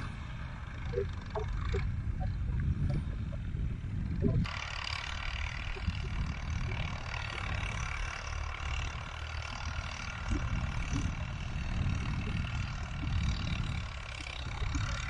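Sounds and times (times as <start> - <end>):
wind buffeting microphone: 0.9 - 4.5, 5.3 - 8.0, 9.5 - 15.0.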